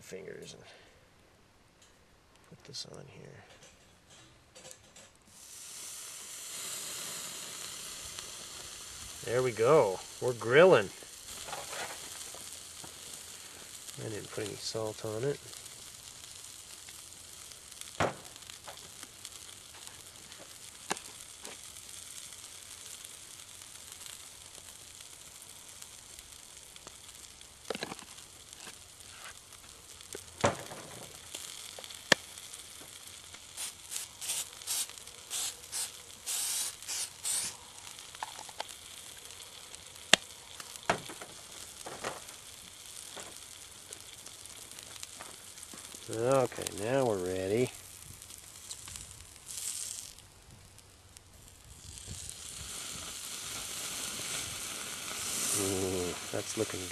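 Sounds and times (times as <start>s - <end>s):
sharp pops: 4.5s - 50.3s
steak sizzling on grill: 4.9s - 56.9s
hissing spurts: 5.3s - 56.9s.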